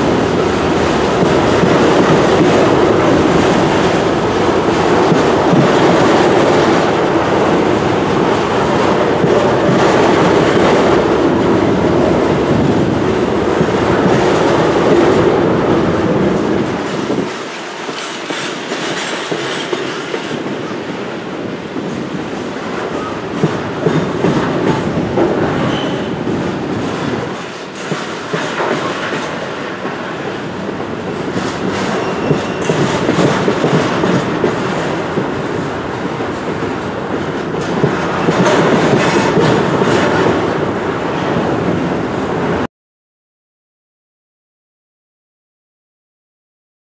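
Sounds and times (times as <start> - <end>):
train wheels rumbling on track: 0.0 - 42.7
wheels clicking and clacking: 16.6 - 20.6.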